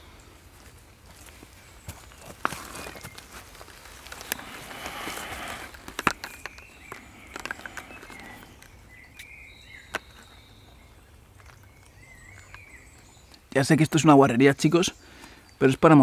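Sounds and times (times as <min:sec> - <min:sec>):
plastic pouch rustling: 0:02.3 - 0:08.8.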